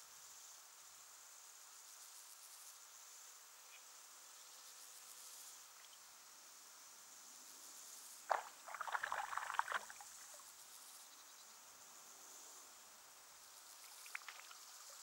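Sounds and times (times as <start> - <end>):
insects chirping: 0.0 - 15.0
frog splashing into water: 8.3 - 10.4, 13.9 - 14.7
splashing and rustling in water: 8.3 - 10.4, 13.9 - 15.0.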